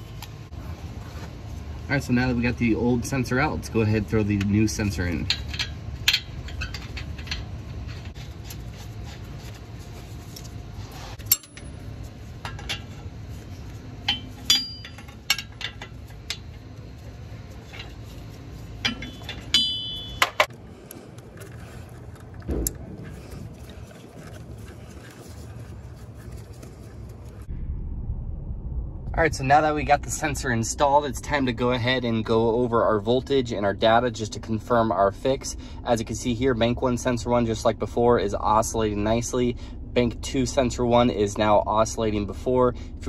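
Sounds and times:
wrench clinking against metal: 4.4 - 8.0, 11.2 - 11.9, 14.0 - 16.5, 18.8 - 20.5.

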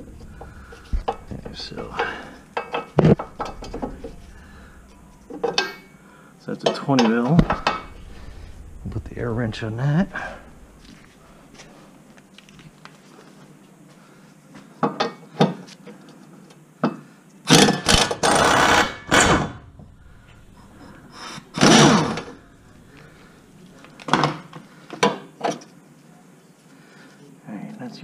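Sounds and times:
clicks and knocks of metal: 0.2 - 6.0, 6.6 - 8.0
pneumatic impact wrench hammering: 17.5 - 19.6.

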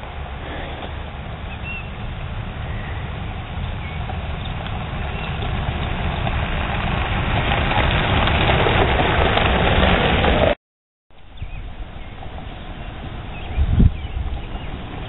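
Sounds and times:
tyres on gravel: 0.0 - 10.6.

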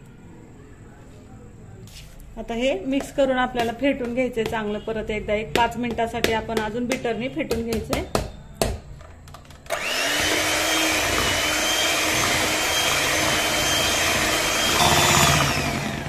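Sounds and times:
hand mixer motor whining: 9.7 - 16.0.

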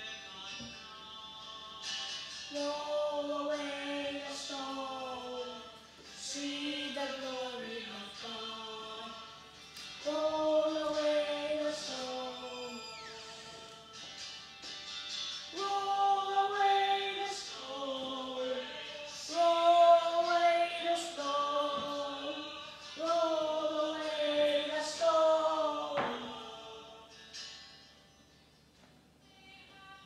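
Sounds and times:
choir singing a hymn: 2.5 - 13.9, 15.5 - 27.2.

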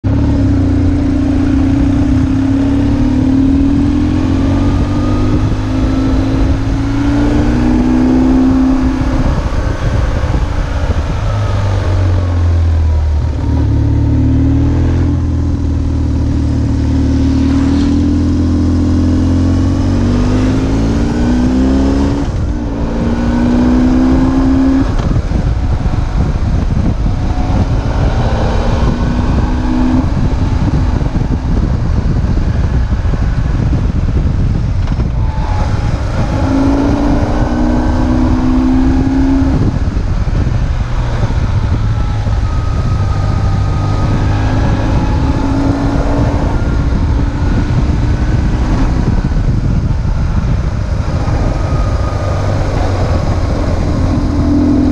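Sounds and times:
motorcycle engine accelerating: 0.0 - 54.9.

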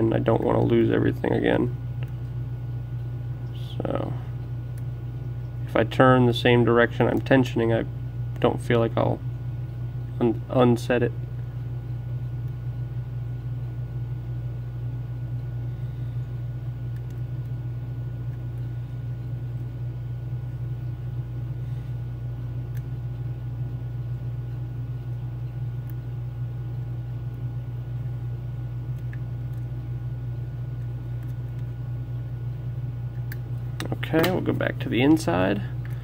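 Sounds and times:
low hum: 0.0 - 36.0.

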